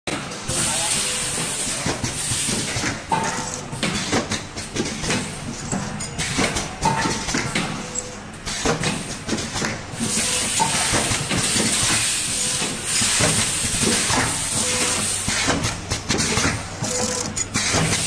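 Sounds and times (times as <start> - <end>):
machine hissing bursts: 0.5 - 2.9, 9.9 - 18.0
sharp mechanical clacks: 1.0 - 18.0.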